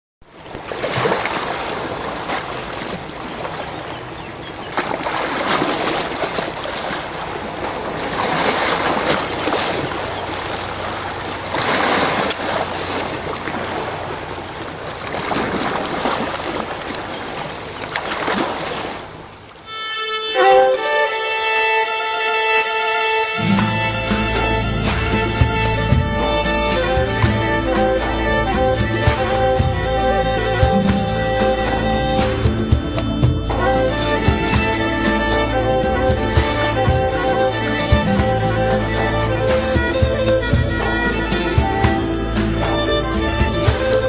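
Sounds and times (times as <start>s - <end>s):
sea waves washing in: 0.2s - 19.8s, 22.4s - 44.0s
bowed fiddle melody: 19.6s - 44.0s.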